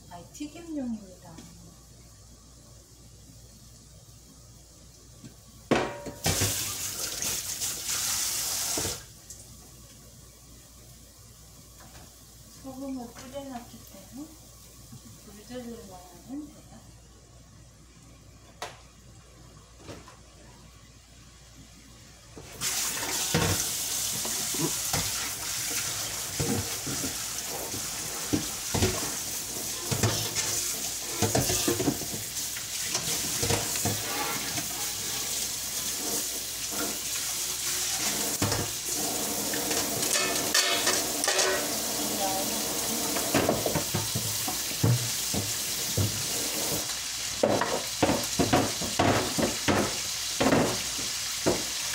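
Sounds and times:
pan and utensils knocking: 0:05.7 - 0:06.7, 0:29.8 - 0:32.3, 0:39.6 - 0:41.8, 0:43.0 - 0:46.8, 0:47.4 - 0:51.7
fish sizzling in hot oil: 0:06.2 - 0:09.1, 0:22.5 - 0:51.9.

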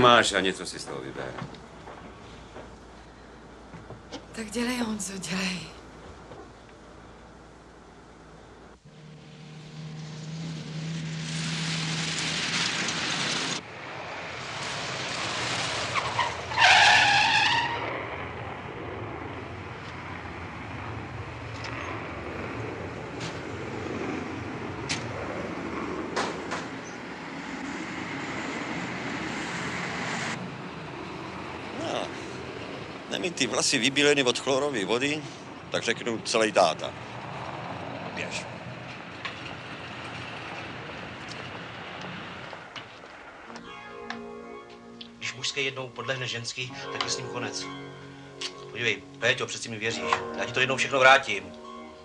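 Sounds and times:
car engine and road noise: 0:00.0 - 0:52.0
tyres screeching: 0:15.9 - 0:18.0.

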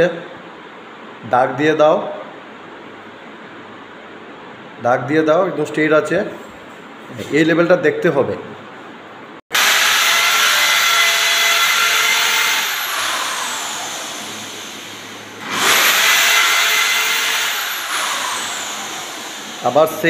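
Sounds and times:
electric drill boring into wall: 0:09.5 - 0:20.0.

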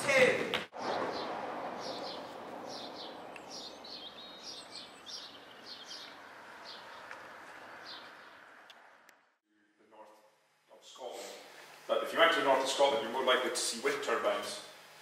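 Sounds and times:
small birds chirping: 0:00.8 - 0:08.7.

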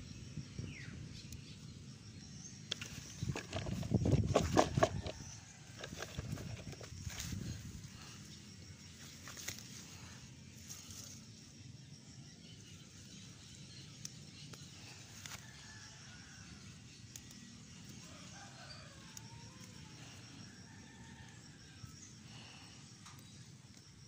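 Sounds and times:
rural background noise: 0:00.0 - 0:24.0
rooster crowing: 0:18.0 - 0:22.0.

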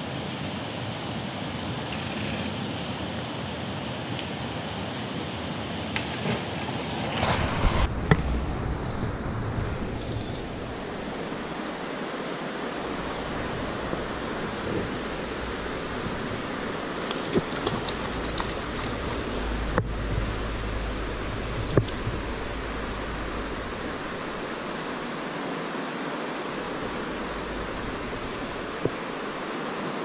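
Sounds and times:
rain falling on river: 0:07.3 - 0:30.0.

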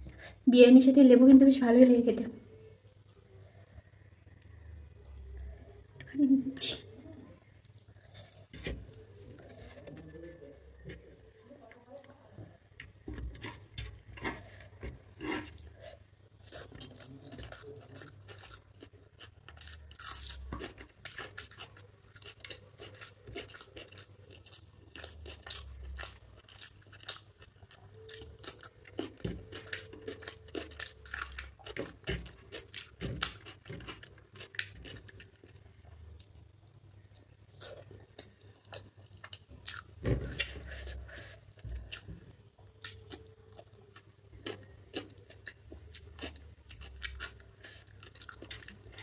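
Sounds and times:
person chewing food: 0:12.8 - 0:49.0.

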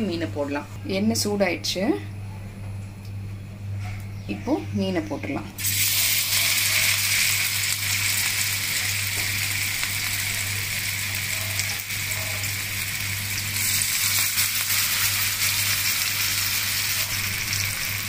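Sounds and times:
fish sizzling in hot oil: 0:05.6 - 0:18.0.

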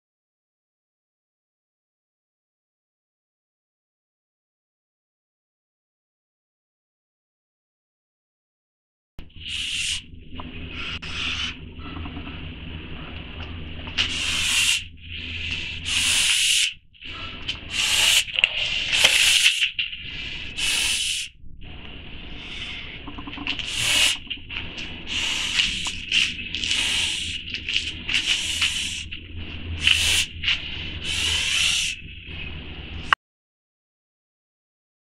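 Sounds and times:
goose hissing: 0:09.4 - 0:12.2, 0:13.9 - 0:21.4, 0:22.3 - 0:29.2, 0:29.8 - 0:32.2.

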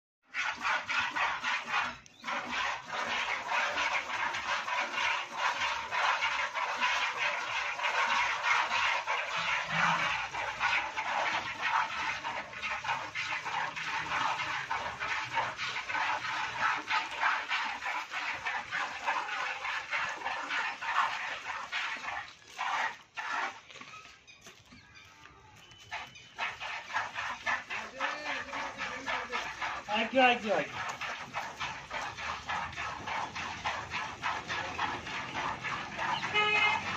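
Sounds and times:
milk squirting into plastic bucket: 0:00.3 - 0:24.1, 0:25.6 - 0:36.9.

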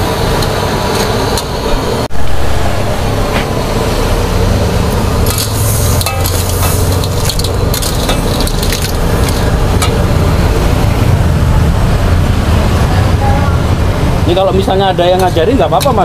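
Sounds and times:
low rumble: 0:01.6 - 0:14.4
spatula scraping a wok: 0:05.2 - 0:10.1
food sizzling in a wok: 0:05.2 - 0:10.6.

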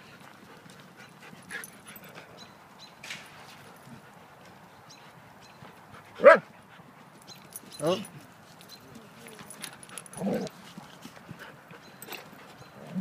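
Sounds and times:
dog barking loudly: 0:06.2 - 0:06.5.

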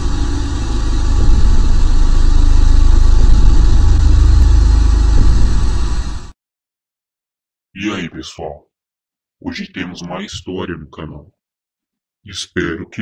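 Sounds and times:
static hiss: 0:00.0 - 0:06.3
deep rumble: 0:00.0 - 0:06.4.

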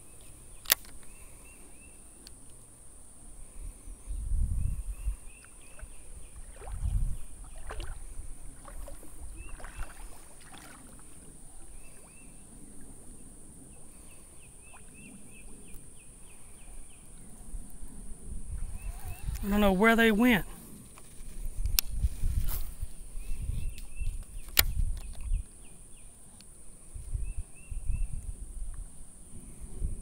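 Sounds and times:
water splashing around wading legs: 0:05.4 - 0:12.2.

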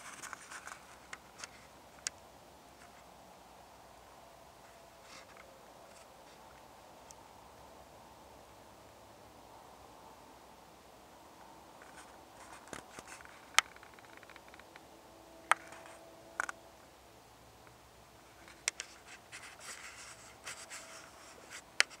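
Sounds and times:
faint crackling and scratching: 0:00.0 - 0:03.2, 0:04.1 - 0:07.6, 0:11.3 - 0:16.7, 0:17.6 - 0:22.0
low steady hiss: 0:00.0 - 0:22.0.

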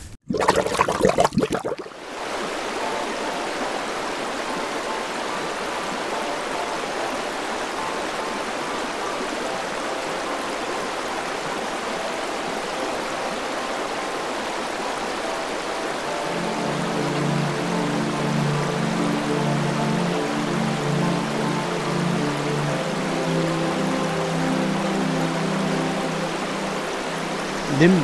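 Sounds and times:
gurgling splash: 0:00.3 - 0:02.1
river running over stones: 0:00.3 - 0:28.0.

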